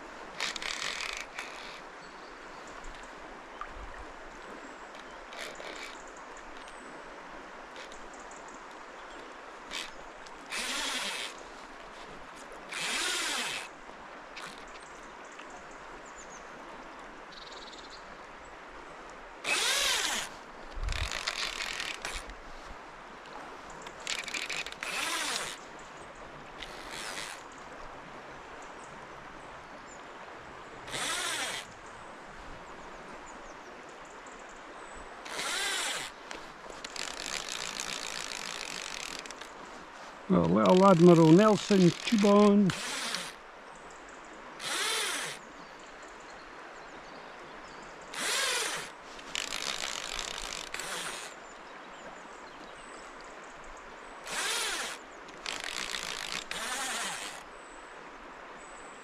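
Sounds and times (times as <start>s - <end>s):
river water rushing: 0.0s - 59.0s
fly reel ratchet buzzing: 0.4s - 1.8s, 9.7s - 11.4s, 12.7s - 13.7s, 19.5s - 20.3s, 20.9s - 22.3s, 24.0s - 25.6s, 30.9s - 31.7s, 35.3s - 39.5s, 40.7s - 43.4s, 44.6s - 45.4s, 48.2s - 51.4s, 54.3s - 57.4s.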